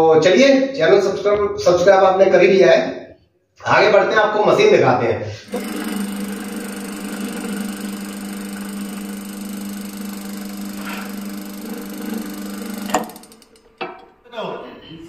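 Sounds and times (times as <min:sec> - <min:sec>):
electric motor humming: 0:05.5 - 0:13.8.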